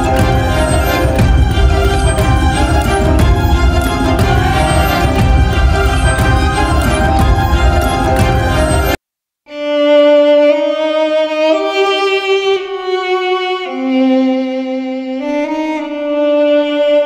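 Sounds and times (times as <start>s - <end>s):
dense background music: 0.0s - 9.0s
slow violin melody: 0.0s - 17.0s.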